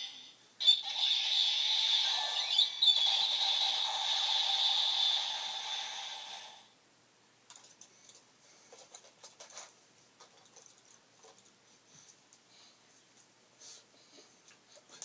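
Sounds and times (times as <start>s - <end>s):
toy electronic sound effect: 0.0s - 6.6s.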